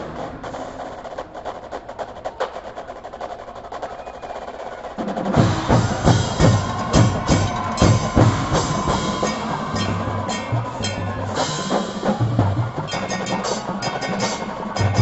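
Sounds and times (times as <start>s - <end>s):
marching drums with bass drums: 0.0s - 15.0s
rapid drum clicking pattern: 4.8s - 15.0s.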